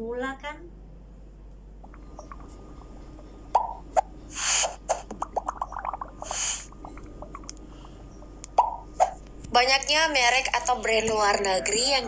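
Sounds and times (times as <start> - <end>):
short popping blips: 3.5 - 7.6, 8.4 - 9.2.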